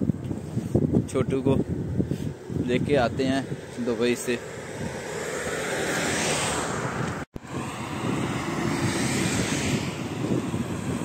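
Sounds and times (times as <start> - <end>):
road traffic passing: 0.0 - 11.0
wind on microphone: 0.0 - 11.0.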